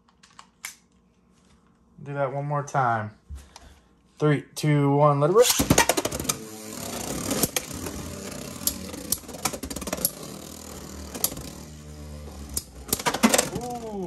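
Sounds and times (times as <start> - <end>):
spinning tops whirring: 5.4 - 14.0.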